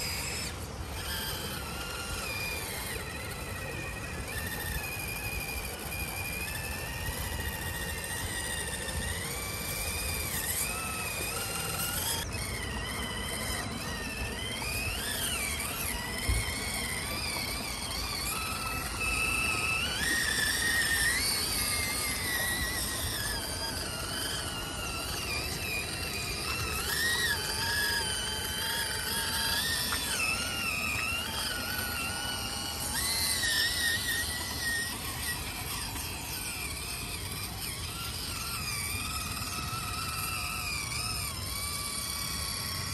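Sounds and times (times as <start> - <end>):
electric motor whining: 0.0 - 42.9.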